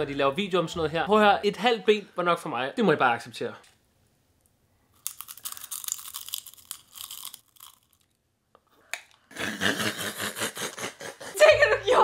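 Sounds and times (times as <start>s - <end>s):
crisp crunching while chewing: 4.9s - 8.2s.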